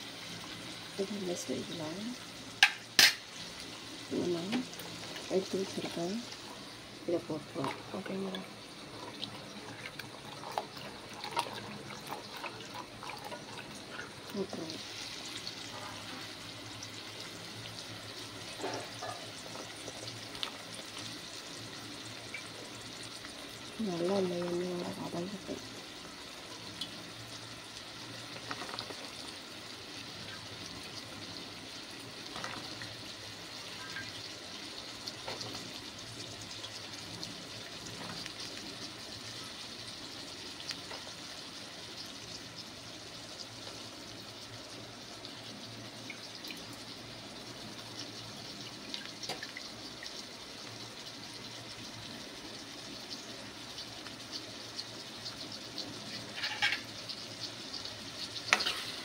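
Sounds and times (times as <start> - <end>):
vegetables sizzling in hot oil: 0.0 - 59.0
small crackles and pops: 18.5 - 21.4, 28.1 - 29.4, 34.9 - 39.4, 40.6 - 41.2, 47.8 - 50.8.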